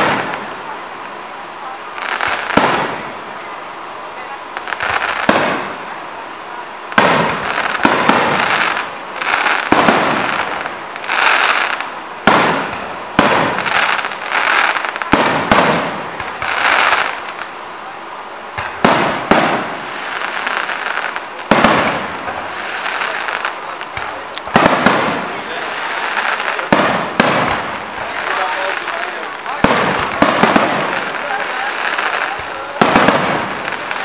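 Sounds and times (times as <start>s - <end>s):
fireworks crackling and hissing: 0.0s - 34.0s
fireworks shells bursting: 6.9s - 17.4s, 18.5s - 34.0s.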